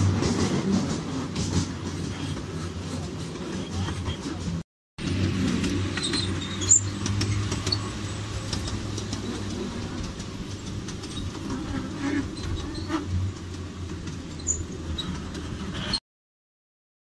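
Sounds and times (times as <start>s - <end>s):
miniature train droning: 0.0s - 16.0s
train clicks and knocks: 0.0s - 16.0s.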